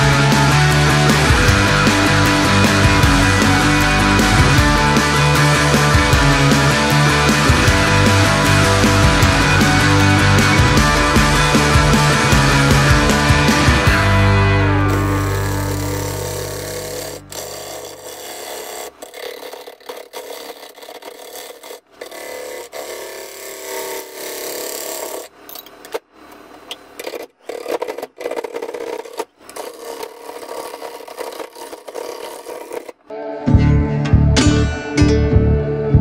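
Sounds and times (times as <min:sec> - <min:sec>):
rock music: 0:00.0 - 0:17.2, 0:33.1 - 0:36.0
gouge scraping spinning wood: 0:14.8 - 0:25.5, 0:26.9 - 0:33.1.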